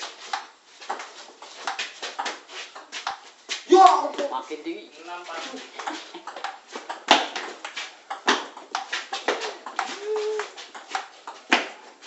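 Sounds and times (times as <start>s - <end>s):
table tennis ball hits: 5.8s - 11.8s.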